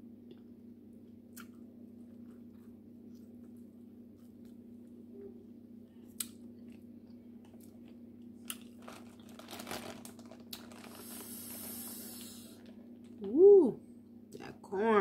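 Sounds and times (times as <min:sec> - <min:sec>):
faint steady hum: 0:00.0 - 0:15.0
plastic bag crinkling: 0:08.5 - 0:13.2.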